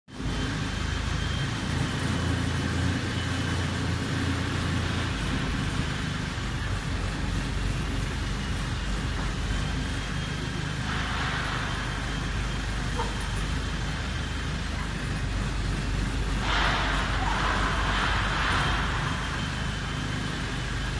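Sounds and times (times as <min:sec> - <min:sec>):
diesel engine drone: 0:00.1 - 0:20.9.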